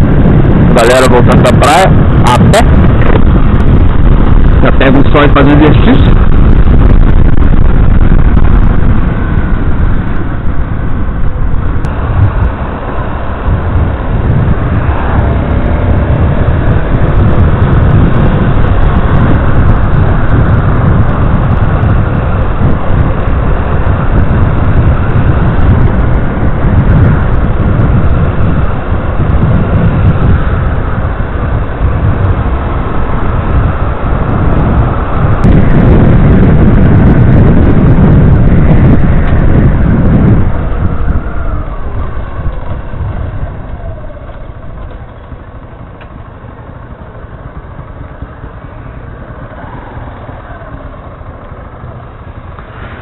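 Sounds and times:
motorcycle engine running: 0.0s - 53.0s
wind buffeting microphone: 0.0s - 53.0s.

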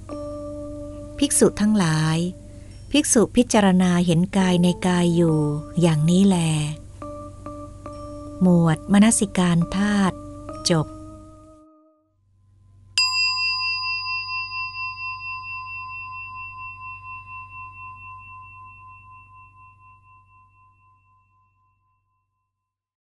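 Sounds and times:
singing bowl bell ringing: 0.1s - 6.0s, 13.0s - 22.3s.

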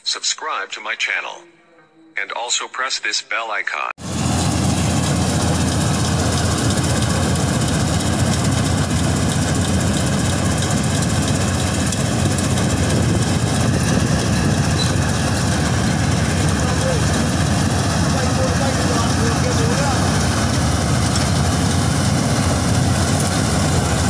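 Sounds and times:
combine harvester droning: 4.0s - 24.0s.

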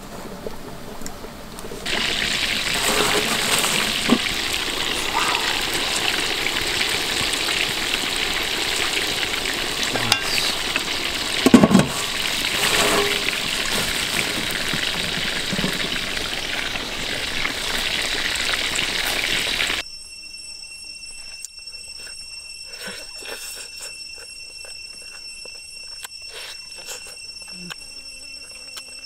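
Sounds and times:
boiling water hissing and bubbling: 0.0s - 19.8s
metal lid clattering on pot: 11.4s - 13.9s.

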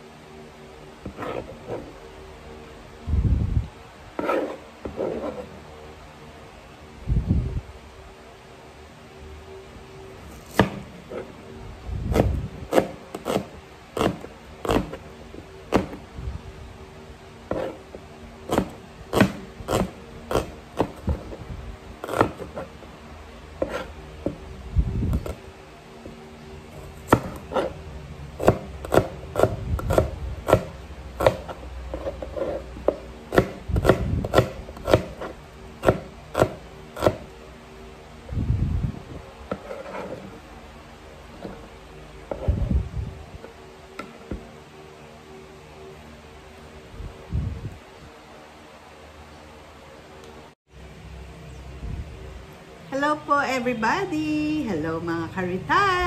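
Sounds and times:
knife chopping on plastic board: 10.5s - 10.8s, 12.2s - 15.0s, 18.5s - 21.2s, 22.0s - 22.7s, 27.1s - 27.7s, 28.4s - 32.1s, 32.8s - 37.2s.

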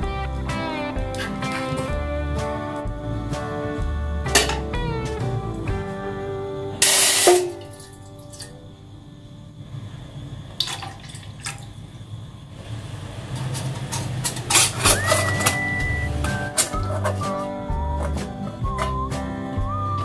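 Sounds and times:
metal tray clinking in pot: 13.4s - 15.6s.

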